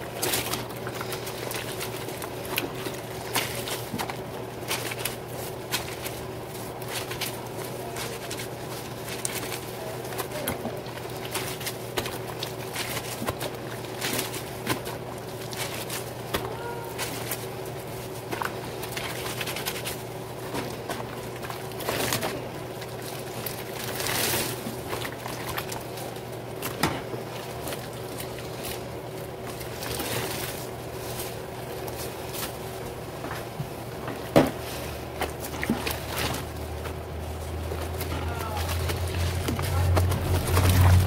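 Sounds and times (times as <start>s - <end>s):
wet fabric scrubbing and sloshing: 0.0s - 41.0s.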